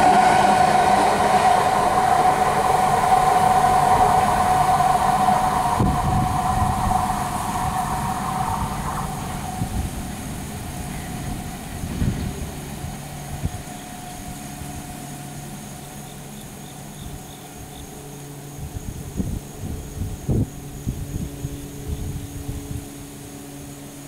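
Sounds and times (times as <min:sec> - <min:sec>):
sharp train knocks: 0:00.0 - 0:17.2
freight train rumbling on rails: 0:00.0 - 0:24.0
thin whine: 0:00.0 - 0:24.0.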